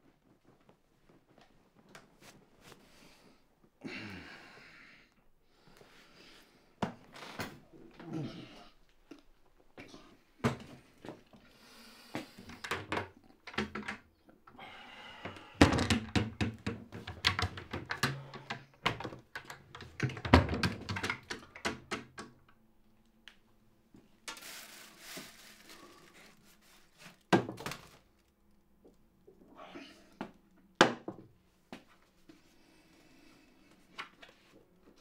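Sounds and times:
cupboard doors knocking and clicking: 15.6 - 19.2.

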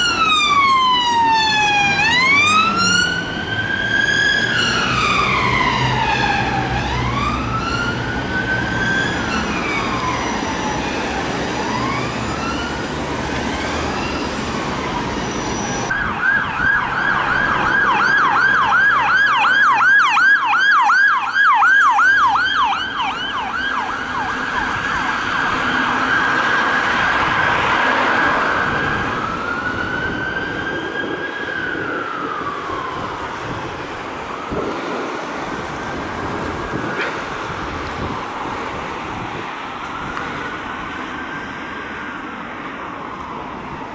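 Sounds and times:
emergency siren wailing and yelping: 0.0 - 43.9
engine and road noise: 0.0 - 43.9.

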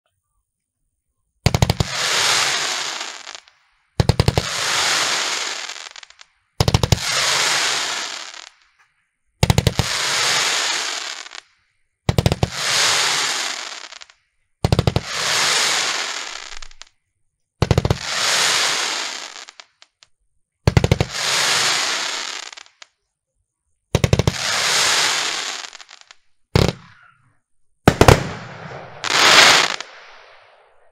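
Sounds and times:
firework hiss: 1.5 - 8.7, 9.4 - 11.5, 12.1 - 16.9, 17.7 - 20.0, 20.7 - 22.9, 24.2 - 26.9, 28.0 - 30.9
firework launch bangs: 27.9 - 30.9.

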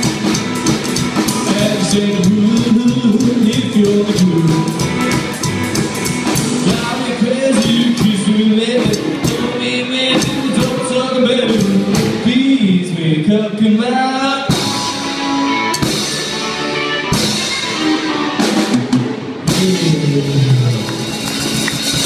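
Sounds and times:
drum beat: 0.0 - 10.8, 18.6 - 22.0
electric guitar: 0.0 - 22.0
upright bass: 0.0 - 22.0.

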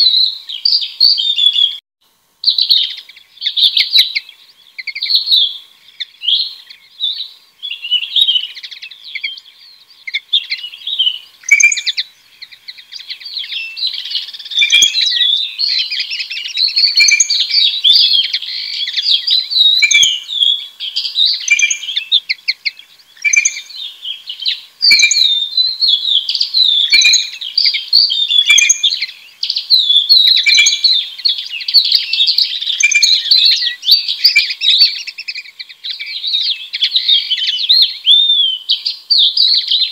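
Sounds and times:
songbird singing: 0.0 - 1.8, 2.4 - 39.9
faint birds: 0.0 - 39.9.

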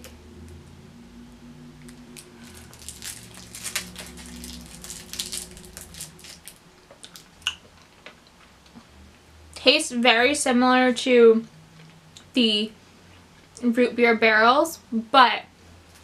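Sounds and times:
plastic candy wrapper crinkling: 1.9 - 7.3.

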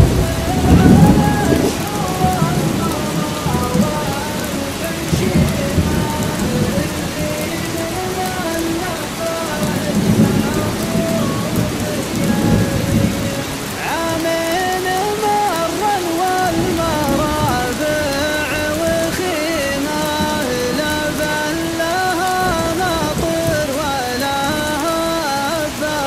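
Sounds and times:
low rolls of thunder: 0.0 - 8.6, 9.3 - 13.6
slow wordless melody: 0.0 - 26.0
steady rain: 0.0 - 26.0.

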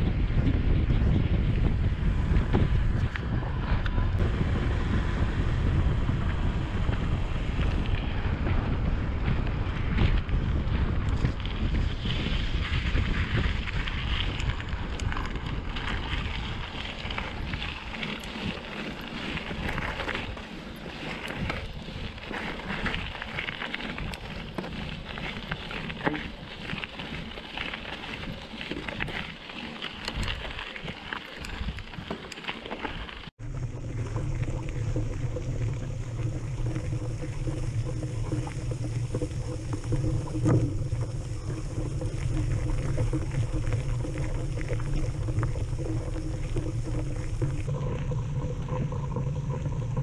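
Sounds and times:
wind buffeting microphone: 0.0 - 32.1, 33.3 - 50.0
bike rattles and ticks: 0.0 - 50.0
bike tyres rolling: 0.0 - 50.0
tyres crunching on gravel: 9.3 - 48.2.

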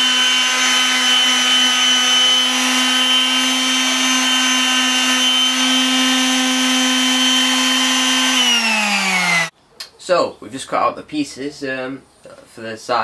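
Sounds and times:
orbital sander running on wood: 0.0 - 9.5.

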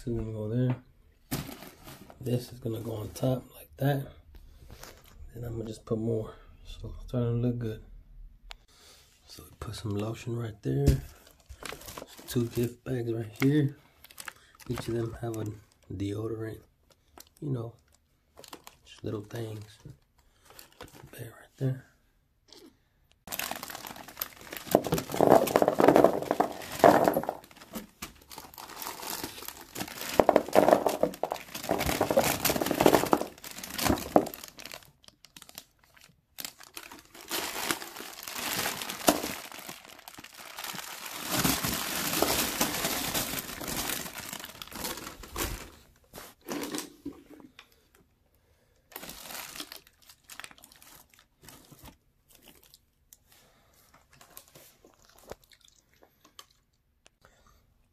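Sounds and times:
plastic packaging crinkling: 1.3 - 2.4, 11.2 - 12.8, 13.4 - 15.9, 16.9 - 21.1, 23.3 - 47.0, 48.9 - 52.8.

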